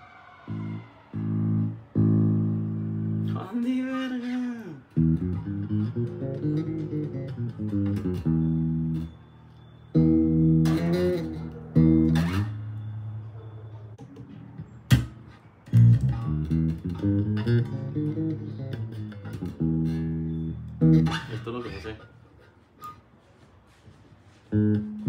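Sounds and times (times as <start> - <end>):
electric bass guitar notes: 1.1 - 3.4, 4.9 - 9.2, 9.9 - 13.2, 14.0 - 22.1, 24.5 - 25.0.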